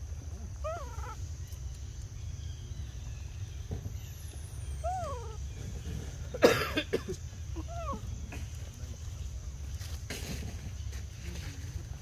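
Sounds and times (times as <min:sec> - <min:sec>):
baby monkey coo call: 0:00.2 - 0:01.7, 0:04.0 - 0:06.0, 0:07.4 - 0:08.3.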